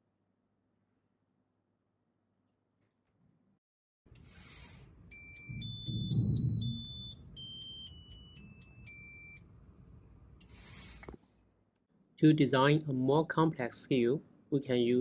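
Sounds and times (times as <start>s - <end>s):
electronic beeps melody: 5.1s - 9.4s
low whir: 5.6s - 7.2s
brief hiss: 10.4s - 11.4s.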